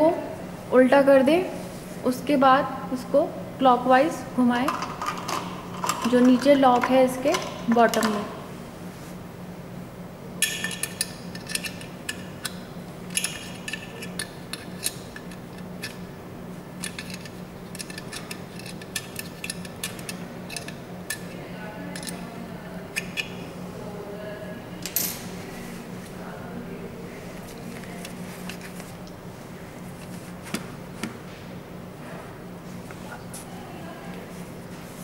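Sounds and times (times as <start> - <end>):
steady low hum: 0.0 - 35.0
metal clicking and scraping: 16.8 - 21.2.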